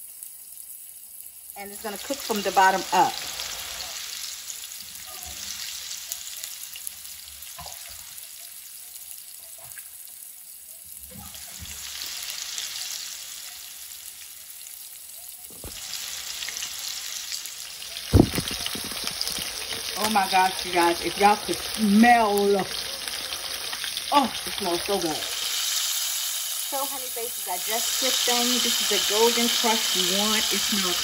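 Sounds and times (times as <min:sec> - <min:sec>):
meat sizzling in a pan: 0:00.0 - 0:31.0
sharp thump: 0:18.1 - 0:18.8.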